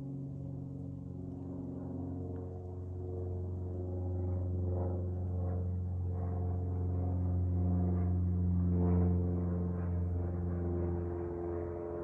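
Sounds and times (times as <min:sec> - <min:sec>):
airliner droning overhead: 0:00.0 - 0:12.0.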